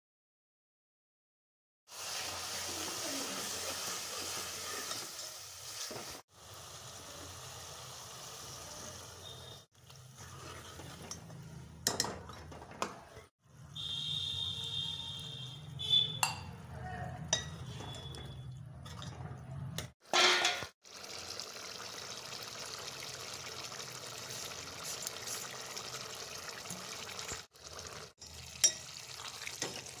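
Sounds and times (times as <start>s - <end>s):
food sizzling in metal pot: 1.9s - 11.7s, 20.0s - 30.0s
steel spoon clinking on pot: 16.1s - 16.6s, 17.2s - 18.2s, 28.2s - 29.0s.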